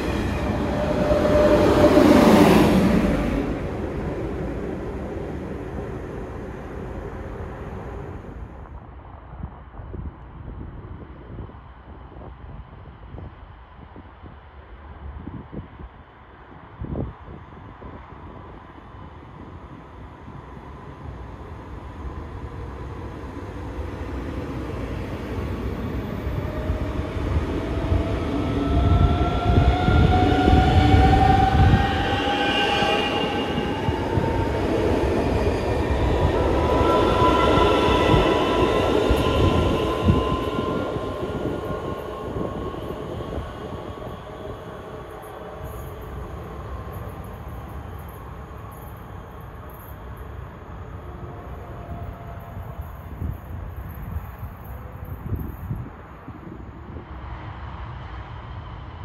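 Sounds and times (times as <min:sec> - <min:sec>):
train wheel and track rumble: 0:00.0 - 0:09.9, 0:15.0 - 0:59.0.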